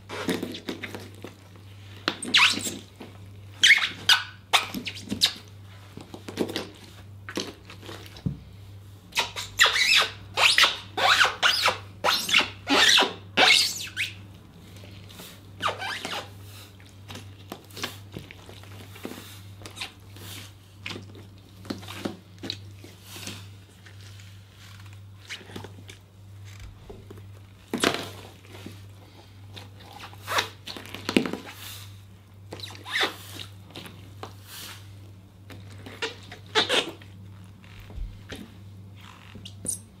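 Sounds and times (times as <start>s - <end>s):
low steady hum: 13.3s - 40.0s.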